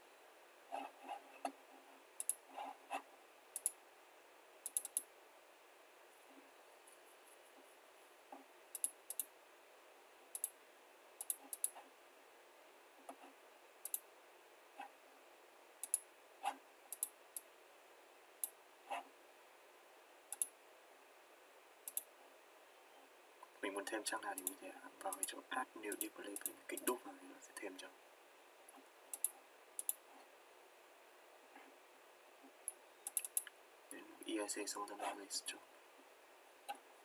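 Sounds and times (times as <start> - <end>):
faint steady hiss: 0.0 - 37.0
computer mouse clicking: 2.2 - 3.0, 3.6 - 3.8, 4.6 - 5.1, 8.7 - 9.3, 10.3 - 10.6, 11.2 - 11.8, 13.1 - 14.1, 15.8 - 17.5, 20.3 - 20.6, 21.8 - 22.1, 24.4 - 27.0, 28.7 - 30.0, 32.6 - 33.6.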